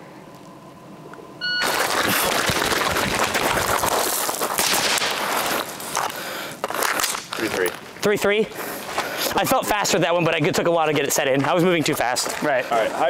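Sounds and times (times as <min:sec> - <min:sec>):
shot timer beep: 0:01.4 - 0:01.7
gear rustling while running: 0:01.6 - 0:07.6.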